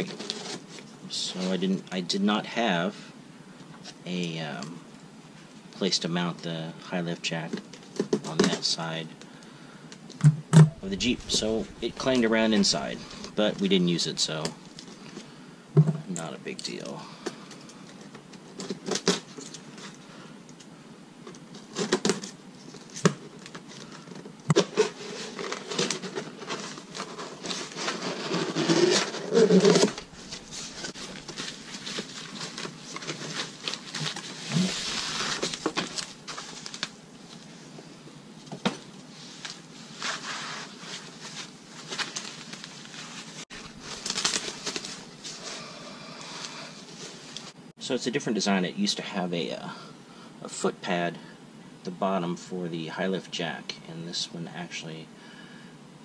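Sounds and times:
plastic wrapping crinkling: 26.9s - 37.0s, 40.9s - 45.5s.

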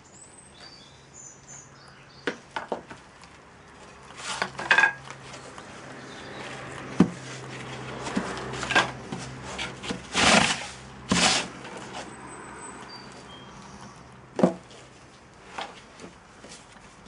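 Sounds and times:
wooden boards scraping on cloth: 4.1s - 5.4s, 6.4s - 12.2s.

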